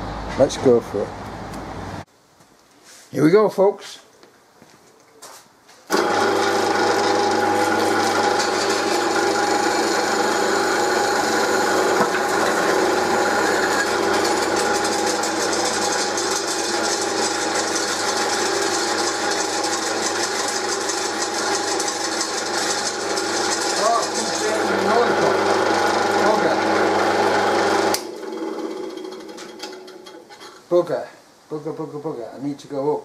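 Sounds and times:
drill motor humming: 0:05.9 - 0:29.3
drill grinding into steel: 0:05.9 - 0:30.2.

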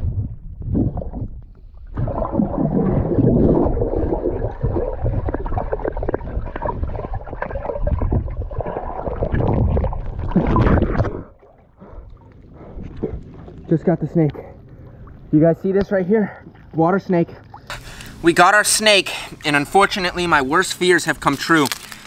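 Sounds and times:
water splash: 0:00.0 - 0:13.8
muffled underwater gurgling: 0:00.0 - 0:15.4.

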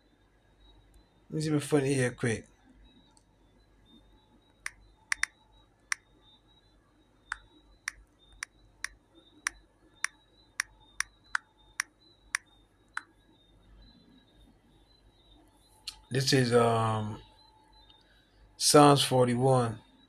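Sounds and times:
phone keyboard clicks: 0:04.7 - 0:05.3.

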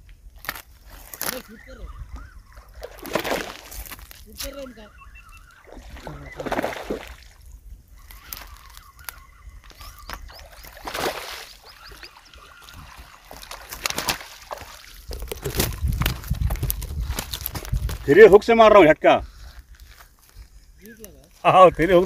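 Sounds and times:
fish splashing in water: 0:00.9 - 0:17.7
fish flopping on bank: 0:02.1 - 0:04.6, 0:05.6 - 0:07.5, 0:08.1 - 0:18.0.

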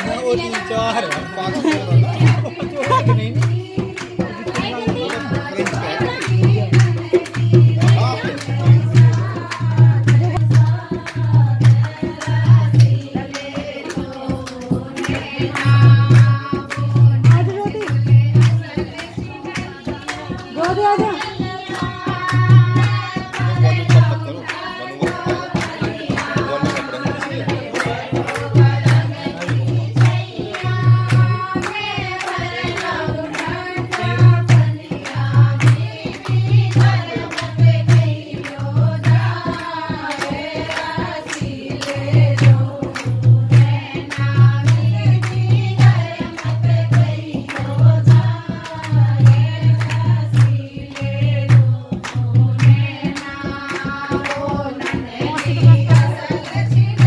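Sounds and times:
person singing: 0:00.0 - 0:03.3, 0:55.6 - 0:55.9
steady drum beat: 0:00.0 - 0:57.0.

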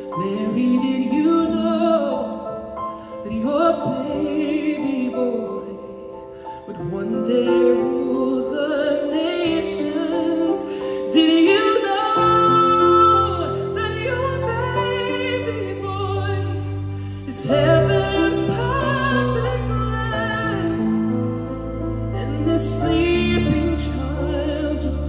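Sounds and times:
man singing with vibrato: 0:03.2 - 0:25.0
orchestra with strings: 0:10.7 - 0:25.0.

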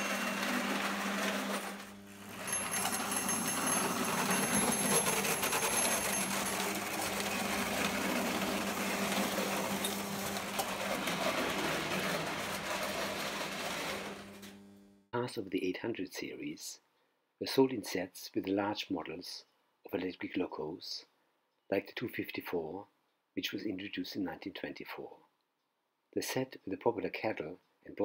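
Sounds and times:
toy train clattering: 0:00.0 - 0:13.8.

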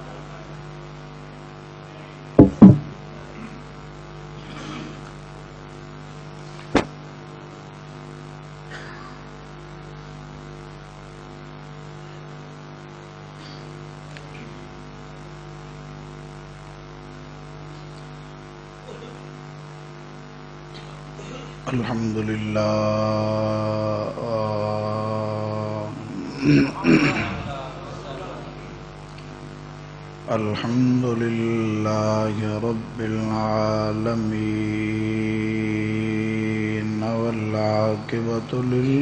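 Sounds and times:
electrical mains hum: 0:00.0 - 0:39.0
loud thumps: 0:02.4 - 0:03.0, 0:06.7 - 0:06.9
sharp knock: 0:02.4 - 0:03.0, 0:06.7 - 0:06.9.

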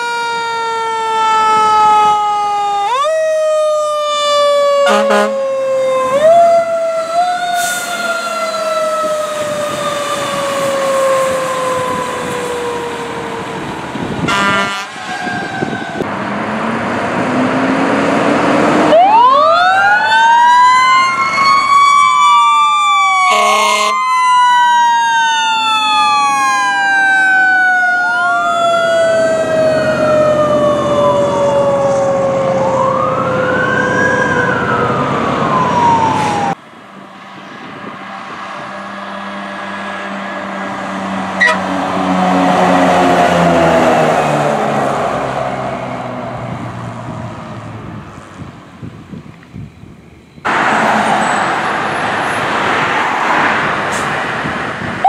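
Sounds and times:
electronic siren wailing: 0:00.0 - 0:16.1, 0:18.8 - 0:36.6, 0:41.4 - 0:44.4
traffic noise: 0:00.0 - 0:55.0
air horn blasts: 0:04.8 - 0:05.4, 0:14.2 - 0:15.1, 0:23.3 - 0:24.0, 0:41.4 - 0:41.8.

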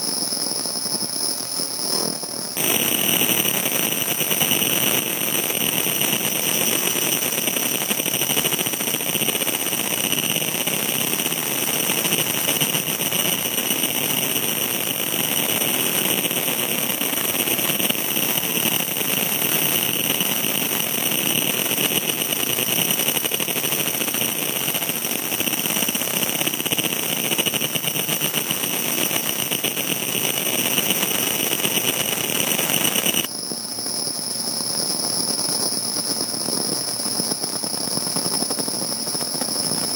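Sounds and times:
high-pitched whines: 0:00.0 - 0:03.6, 0:32.8 - 0:39.9
machine whir: 0:00.0 - 0:10.3, 0:25.0 - 0:39.9.

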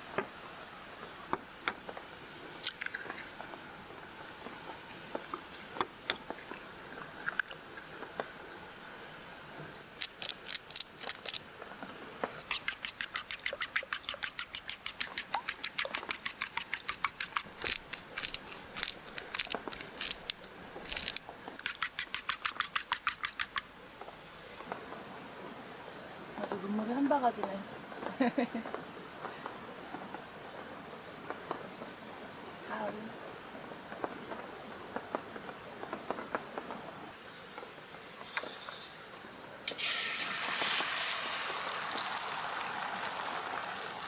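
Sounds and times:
chopsticks beating eggs in bowl: 0:12.5 - 0:20.3.

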